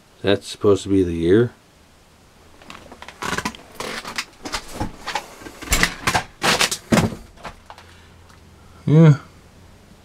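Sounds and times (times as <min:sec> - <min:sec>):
paper and plastic crinkling: 0:02.6 - 0:07.9.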